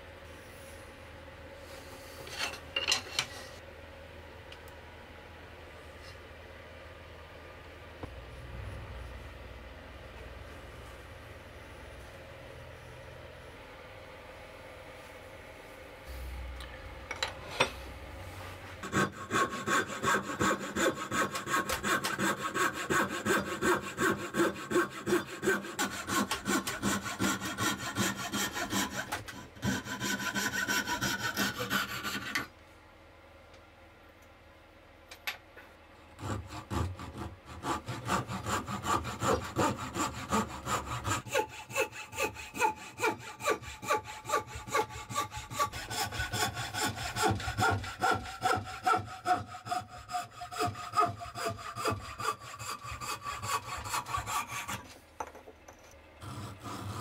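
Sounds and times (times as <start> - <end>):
frame saw cutting wood: 18.8 - 32.5, 36.2 - 55.0, 56.2 - 57.0.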